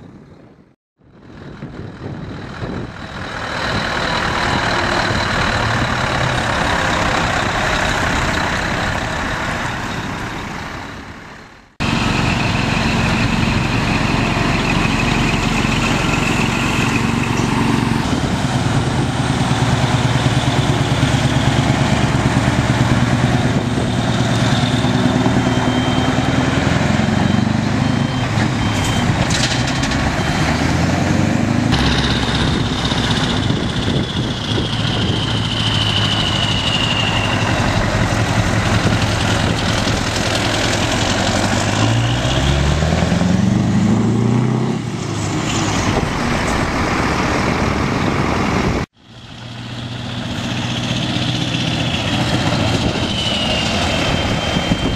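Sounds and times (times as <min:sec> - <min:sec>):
truck diesel engine: 0:00.0 - 0:54.9
reversing beeper: 0:11.8 - 0:18.2, 0:19.0 - 0:44.6, 0:51.2 - 0:54.9.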